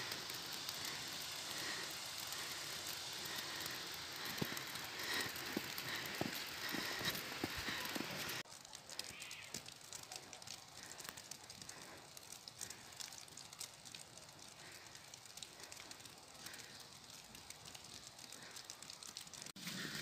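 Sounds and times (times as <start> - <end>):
faint outdoor ambience: 0.0 - 20.0
irregular crackling ticks: 0.0 - 20.0.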